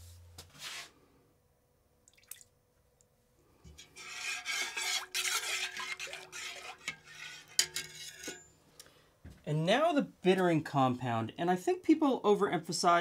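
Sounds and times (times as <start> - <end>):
utensil stirring in metal pot: 3.6 - 8.4.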